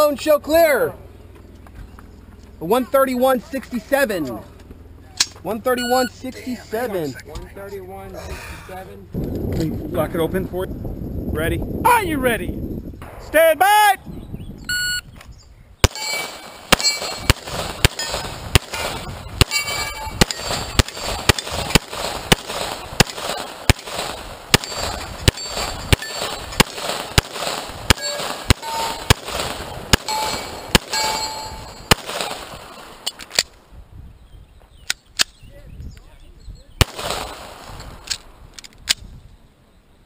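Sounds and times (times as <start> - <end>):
shot timer beep: 14.6 - 15.1
steel targets clanging: 15.8 - 21.8, 24.5 - 26.7, 27.9 - 29.2, 29.9 - 33.3
pistol fire: 15.8 - 33.0, 36.8 - 38.2.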